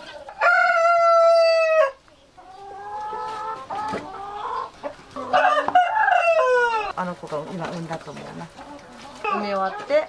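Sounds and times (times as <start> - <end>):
rooster crowing: 0.4 - 2.0, 5.3 - 6.9.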